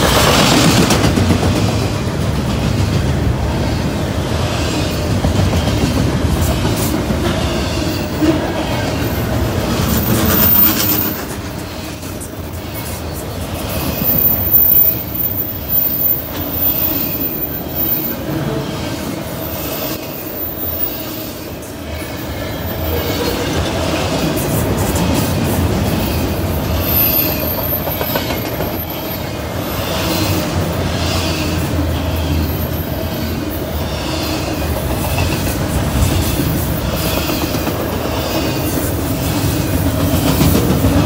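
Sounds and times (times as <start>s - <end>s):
train wheels rumbling on rail: 0.0s - 41.0s.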